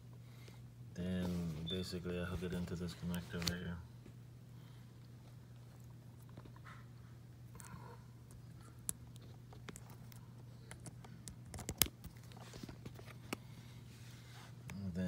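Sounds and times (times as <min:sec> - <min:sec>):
steady low hum: 0:00.0 - 0:15.0
small clicks and knocks of cables: 0:08.3 - 0:13.4.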